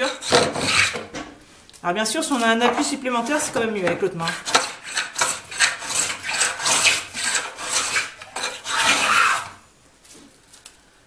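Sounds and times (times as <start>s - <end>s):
hand plane shaving wood: 0.0s - 1.1s, 4.2s - 9.6s.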